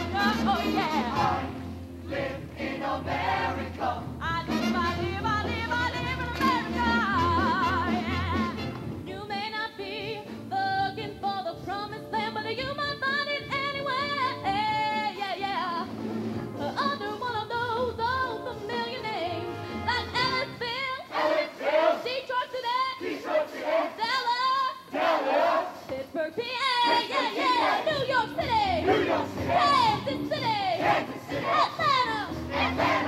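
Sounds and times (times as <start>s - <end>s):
woman singing with vibrato: 0.0s - 1.4s, 4.2s - 15.9s, 16.6s - 23.2s, 23.8s - 24.9s, 25.8s - 33.0s
show choir singing: 0.0s - 5.0s, 21.0s - 22.3s, 22.9s - 24.3s, 24.9s - 26.0s, 26.7s - 33.0s.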